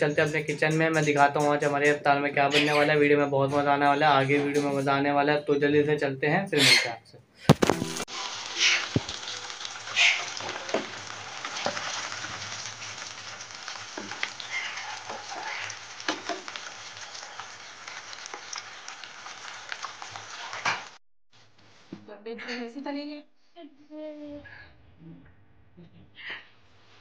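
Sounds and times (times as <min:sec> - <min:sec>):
food deep-frying in hot oil: 0:07.6 - 0:21.0.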